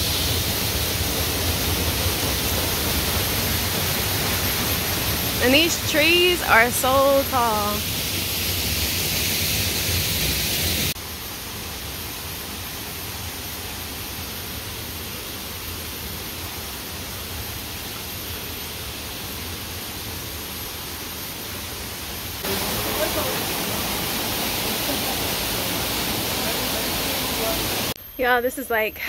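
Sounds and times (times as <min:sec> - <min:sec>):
stream water rushing: 0:22.4 - 0:28.0.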